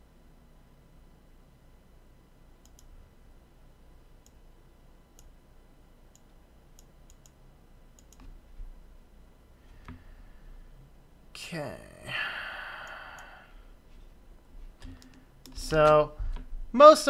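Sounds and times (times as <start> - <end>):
computer mouse clicks: 2.6 - 3.0, 5.2 - 5.4, 6.1 - 7.4, 8.0 - 8.4, 14.8 - 16.5.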